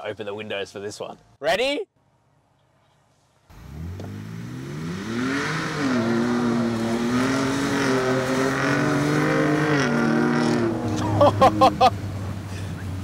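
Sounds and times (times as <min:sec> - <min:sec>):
car engine accelerating hard: 0:03.5 - 0:13.0.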